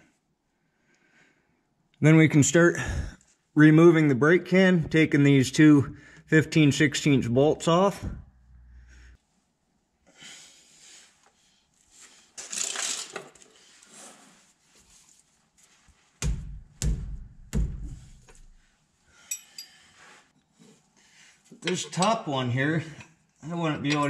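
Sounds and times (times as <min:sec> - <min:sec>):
heavy knocks: 0:16.2 - 0:18.6
wrench clinking and scraping metal: 0:19.2 - 0:19.9.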